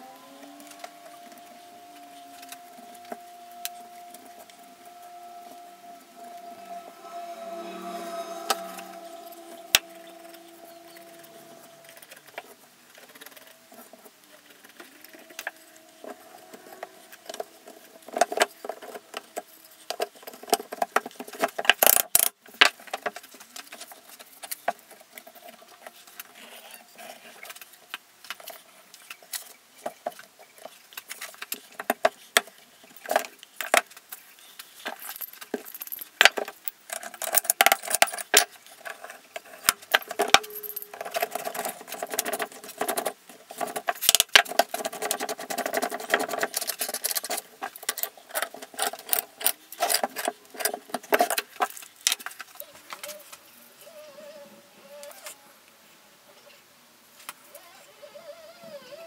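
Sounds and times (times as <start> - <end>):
faint metallic ring: 1.0 - 12.2, 39.9 - 41.9
metal rods clinking against wood: 34.7 - 52.4.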